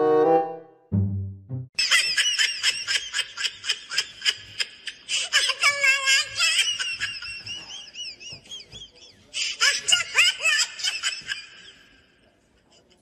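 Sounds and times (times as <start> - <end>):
high-pitched laughter and squealing: 1.8 - 12.0.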